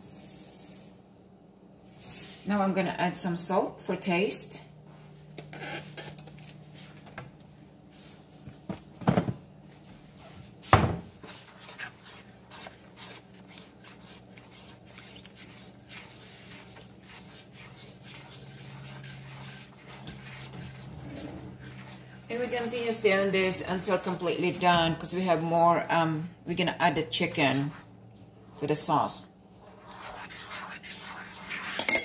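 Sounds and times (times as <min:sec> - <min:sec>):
steady low hum: 0:00.0 - 0:32.0
spoon stirring in metal pan: 0:11.1 - 0:25.4, 0:28.6 - 0:32.0.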